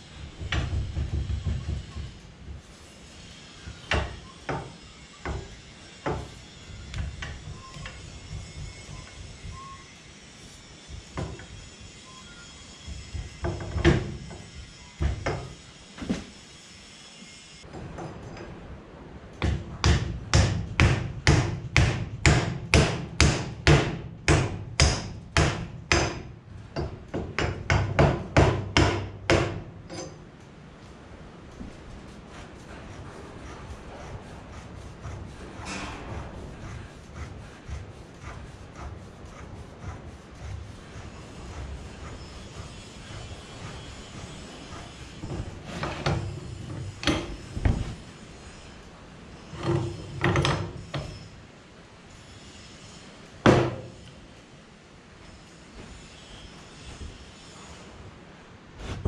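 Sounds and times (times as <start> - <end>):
low rumble of hydraulic ram: 31.5 - 51.4.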